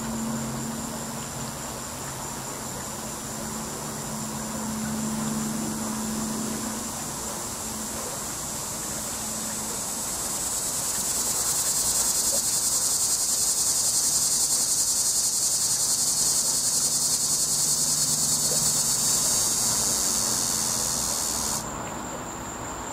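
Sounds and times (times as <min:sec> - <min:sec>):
cicada singing: 0:00.0 - 0:21.9.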